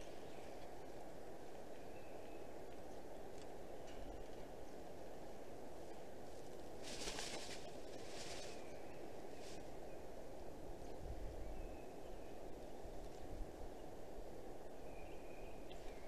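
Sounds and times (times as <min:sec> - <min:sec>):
small birds calling: 0:00.0 - 0:16.0
brief rustle: 0:06.8 - 0:08.6.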